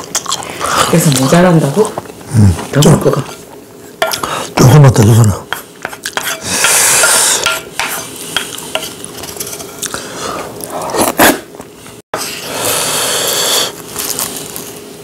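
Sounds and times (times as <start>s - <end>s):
wooden spoon scraping ceramic bowl: 5.5s - 9.8s
dry crackle of seaweed sheet: 13.8s - 14.8s.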